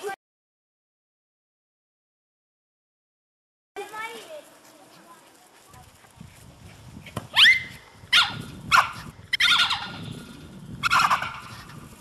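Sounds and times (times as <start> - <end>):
small dog yapping: 7.3 - 10.0, 10.8 - 11.6.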